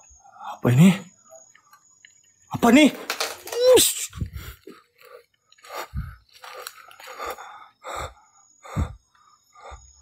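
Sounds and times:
night insects droning: 0.0 - 10.0
footsteps on dry leaves: 5.0 - 7.4.

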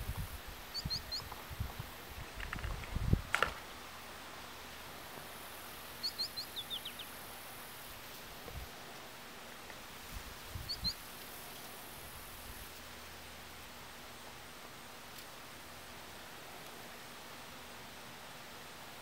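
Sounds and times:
outdoor background hiss: 0.0 - 19.0
songbird chirping: 0.6 - 1.6, 3.6 - 8.2, 10.5 - 11.9.

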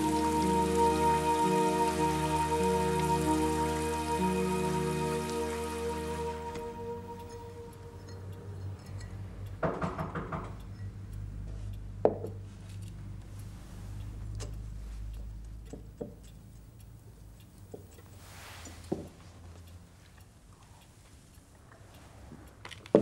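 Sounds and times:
low hum: 0.0 - 9.6
glassware clinking: 8.0 - 9.2.

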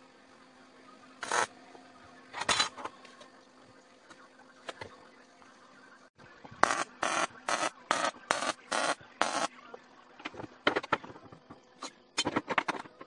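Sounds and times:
welder tack welding: 1.2 - 1.5, 6.6 - 9.5.

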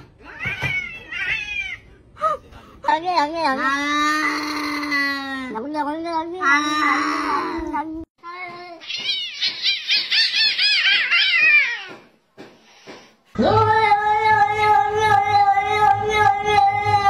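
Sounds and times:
cats yowling: 0.2 - 1.9, 8.8 - 12.0.

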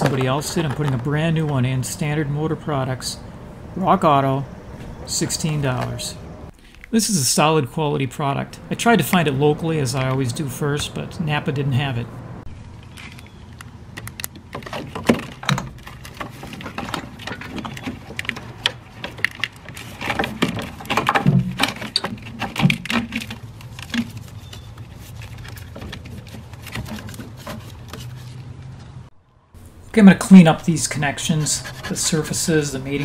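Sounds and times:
cable in plastic loom being handled: 12.8 - 28.9.

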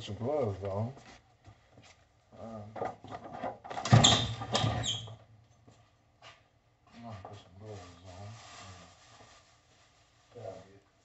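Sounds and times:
gloves rubbing and squeaking: 4.0 - 5.2.

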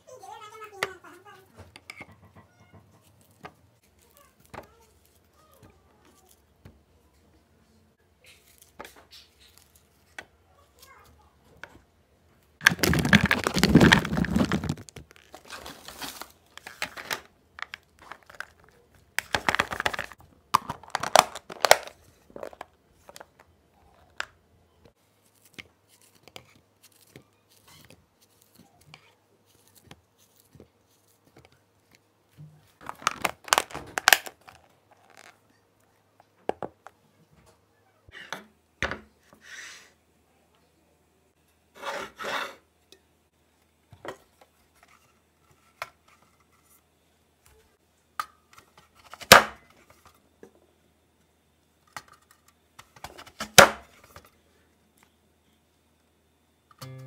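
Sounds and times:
packaging tearing and crinkling: 12.6 - 22.6, 32.8 - 35.3.

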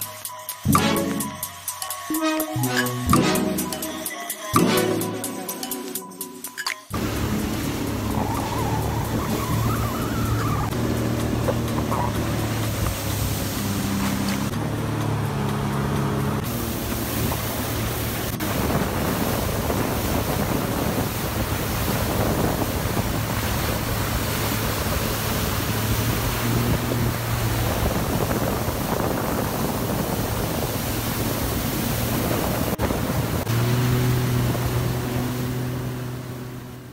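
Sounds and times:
jet ski engine humming: 0.0 - 1.5, 2.1 - 36.9
rushing water spray: 6.9 - 36.9
wind on microphone: 7.0 - 14.5, 16.4 - 36.4.

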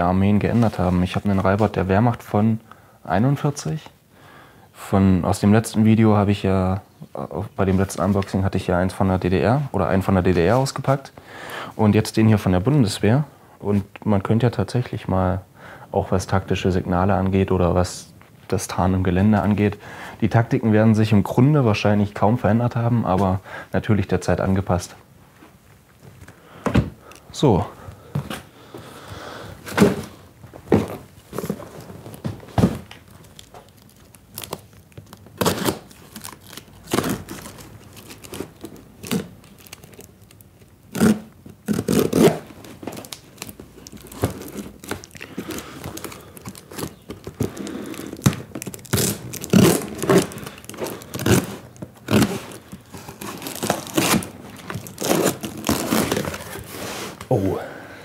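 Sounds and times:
box knocks and scrapes: 29.6 - 32.9
cardboard scraping and crinkling: 29.6 - 33.6, 41.0 - 57.3
knife slitting packing tape: 35.4 - 40.0, 40.9 - 57.1.

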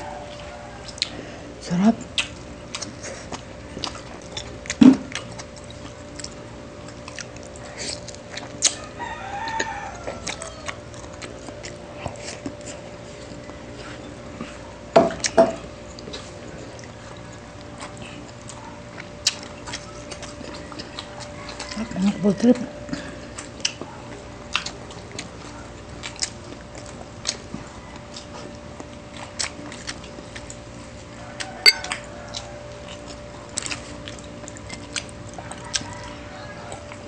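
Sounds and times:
faint steady hum: 0.0 - 37.0
close-up chewing and lip smacks: 0.3 - 1.2, 2.0 - 37.0
rooster crowing: 8.7 - 10.9, 31.2 - 32.7, 35.4 - 37.0.

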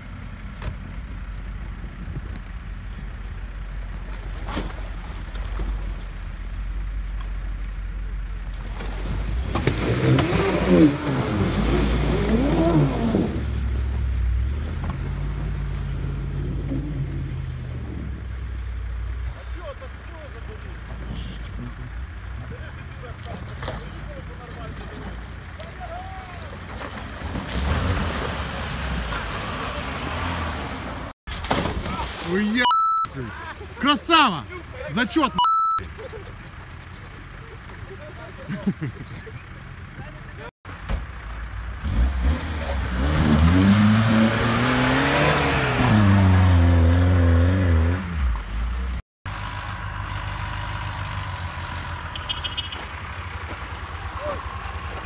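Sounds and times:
car engine pulling hard: 0.0 - 31.2
tyres churning water and slush: 3.7 - 7.1, 8.5 - 15.7, 22.9 - 35.5
car engine revving: 9.2 - 13.8, 41.7 - 52.1.

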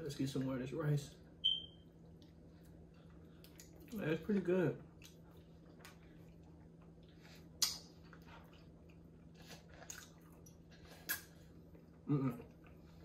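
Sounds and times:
steady low hum: 0.0 - 13.0
person chewing food: 1.9 - 4.0, 4.8 - 13.0.

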